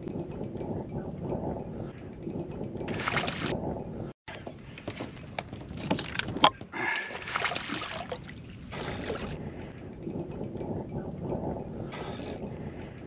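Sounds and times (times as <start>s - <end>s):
sharp clicks and knocks: 0.0s - 6.7s, 7.9s - 13.0s
fish splashing at water surface: 2.8s - 3.6s, 6.8s - 10.6s.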